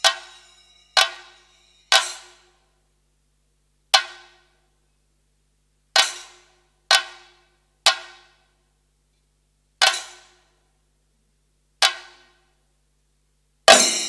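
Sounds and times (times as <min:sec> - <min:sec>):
drum and cymbal strokes: 0:00.0 - 0:02.6, 0:06.0 - 0:07.1, 0:09.8 - 0:10.4, 0:13.7 - 0:14.0.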